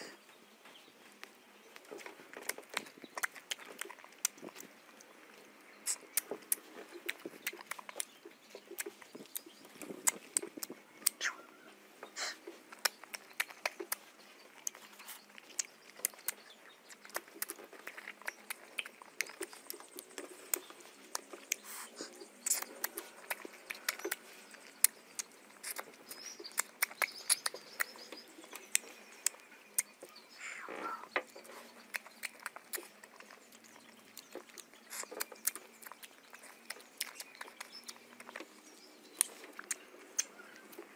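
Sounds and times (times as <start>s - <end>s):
lip smacks and clicks: 1.2s - 30.2s, 31.1s - 40.9s
person eating wet mouth sounds: 5.8s - 11.6s, 12.2s - 27.9s, 30.6s - 38.4s
slurping: 12.1s - 28.0s.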